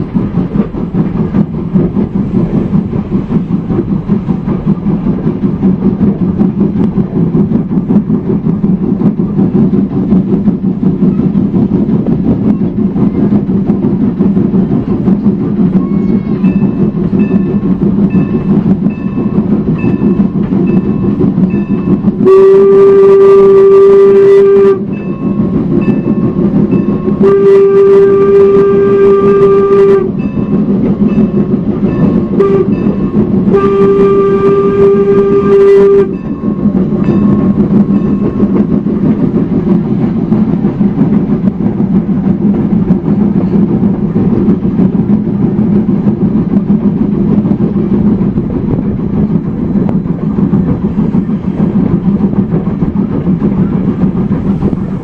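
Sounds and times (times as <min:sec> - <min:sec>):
low rumble of train: 0:00.0 - 0:55.0
locomotive bell ringing: 0:15.7 - 0:22.2, 0:24.8 - 0:27.3, 0:30.1 - 0:33.6, 0:34.6 - 0:39.5
steam whistle: 0:21.8 - 0:25.5, 0:26.9 - 0:30.2, 0:32.0 - 0:36.6.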